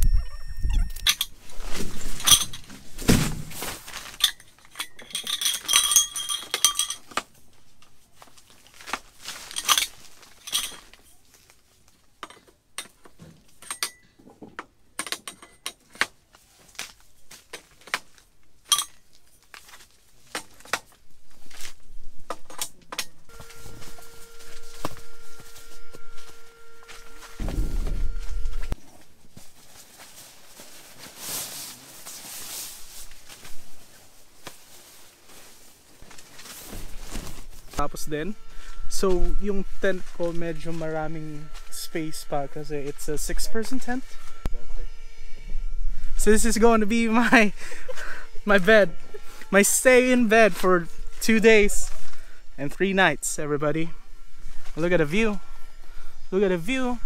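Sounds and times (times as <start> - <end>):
metal cot parts clicking and clinking: 0.9 - 2.9, 3.9 - 11.3, 12.2 - 20.9.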